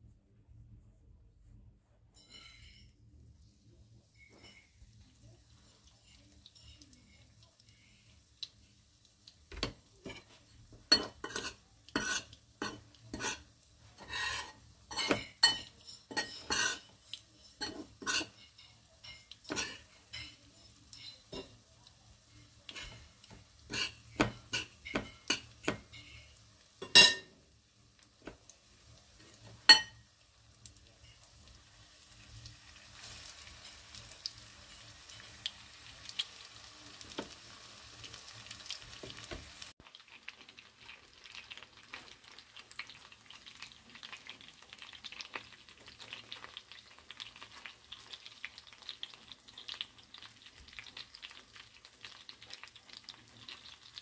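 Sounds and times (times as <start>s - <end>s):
fork scraping and tapping bowl: 2.1s - 3.0s, 9.6s - 13.4s, 14.0s - 21.5s, 22.7s - 27.3s
chicken sizzling in hot oil: 3.6s - 54.0s.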